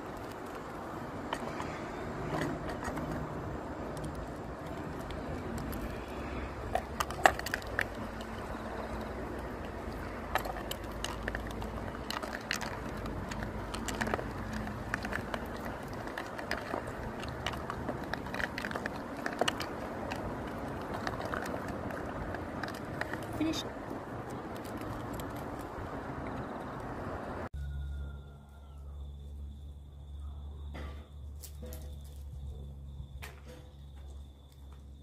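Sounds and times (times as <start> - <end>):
dog crunching food: 6.7 - 25.7.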